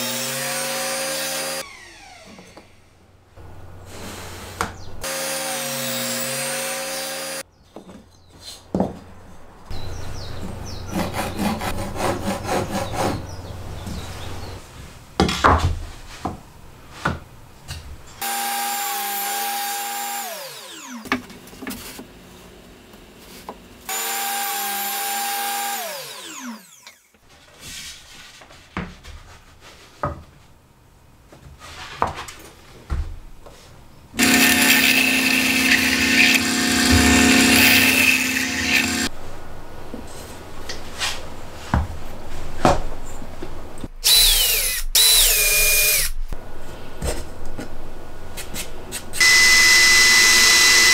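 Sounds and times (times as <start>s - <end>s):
table saw running: 0.0s - 2.8s, 34.2s - 39.1s, 49.2s - 50.9s
drill press running: 34.2s - 39.1s, 49.2s - 50.9s.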